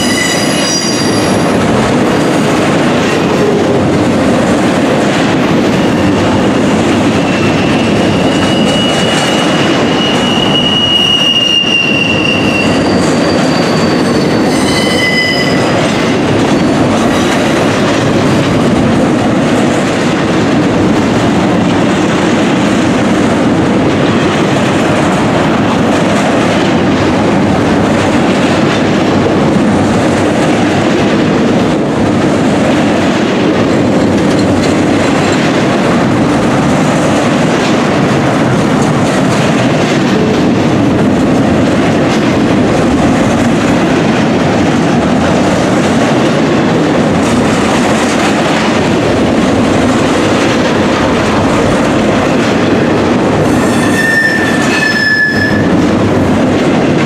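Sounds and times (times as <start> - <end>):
high wheel squeals: 0.0 - 1.4, 7.4 - 15.8, 53.7 - 55.7
train wheels rumbling on rail: 0.0 - 57.0.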